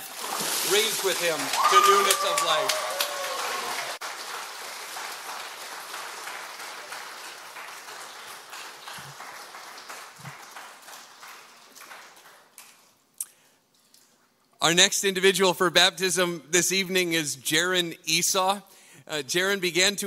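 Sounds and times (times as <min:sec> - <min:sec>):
congregation applauding: 0:00.0 - 0:13.0.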